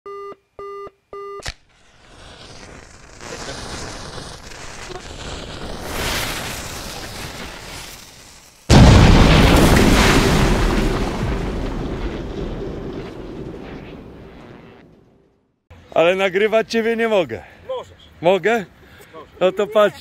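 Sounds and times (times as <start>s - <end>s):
electronic countdown beeps: 0.1s - 1.4s
loud boom: 8.7s - 15.3s.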